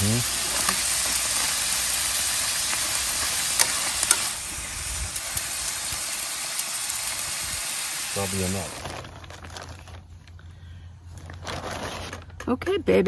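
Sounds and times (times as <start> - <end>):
food sizzling in a skillet: 0.0 - 8.8
spoon stirring in skillet: 0.2 - 1.9, 2.6 - 4.4.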